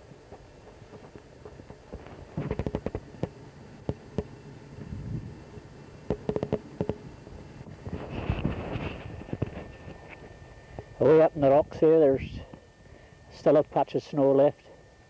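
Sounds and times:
rapid sharp clicks and knocks: 0:06.1 - 0:07.0.

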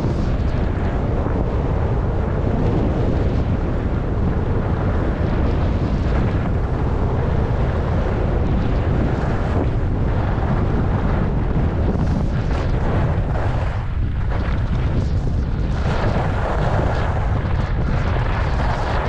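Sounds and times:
wind rumble on microphone: 0:00.0 - 0:19.0.

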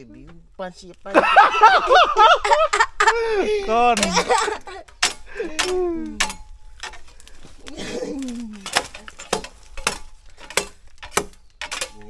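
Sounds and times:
machete chopping bamboo: 0:03.7 - 0:12.0.

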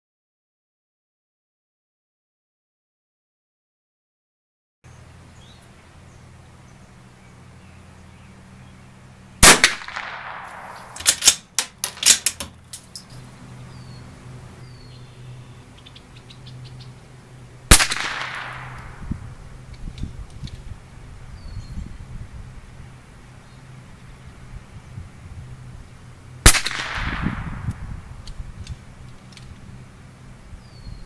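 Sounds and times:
rifle shots with ringing echo: 0:09.4 - 0:11.4, 0:17.7 - 0:19.1, 0:26.4 - 0:27.7
metallic clicks of rifle bolt: 0:10.5 - 0:13.1, 0:28.2 - 0:29.6.

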